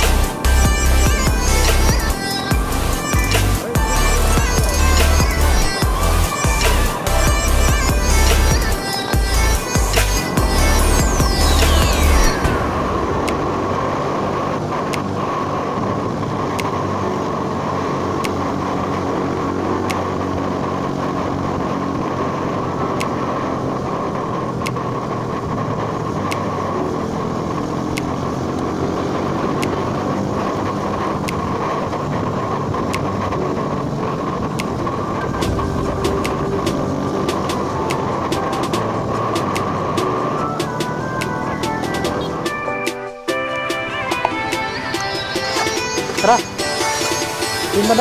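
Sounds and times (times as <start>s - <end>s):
motorcycle engine cruising: 0.0s - 48.0s
road and wind noise: 0.0s - 48.0s.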